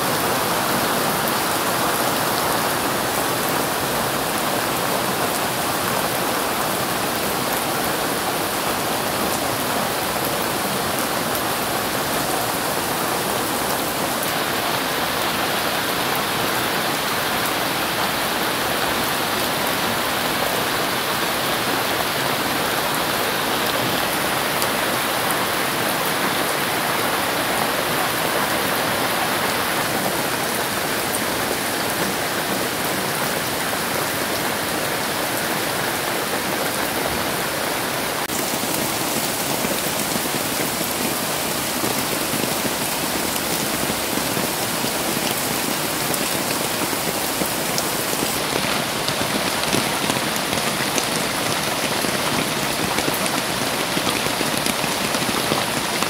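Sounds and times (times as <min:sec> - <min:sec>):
rain falling on leaves: 0:00.0 - 0:56.0.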